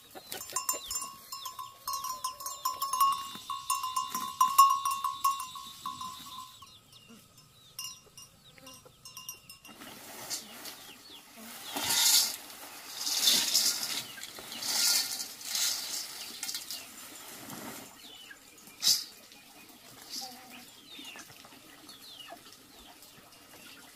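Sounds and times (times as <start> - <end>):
plastic tarpaulin rustling: 9.7 - 18.2
grain pouring into metal basin: 11.6 - 16.9.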